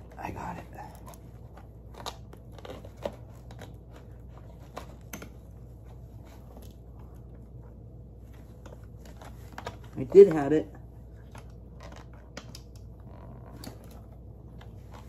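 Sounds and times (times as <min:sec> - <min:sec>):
low steady hum: 0:00.0 - 0:15.0
hands clicking and rustling: 0:11.1 - 0:15.0.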